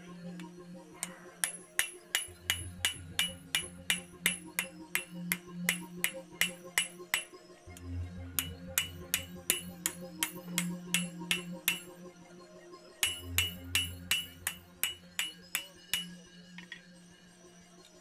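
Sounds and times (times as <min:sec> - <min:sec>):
hammer striking metal on anvil: 0:01.0 - 0:07.3, 0:08.4 - 0:11.9, 0:13.0 - 0:16.8
anvil ringing: 0:13.0 - 0:16.1.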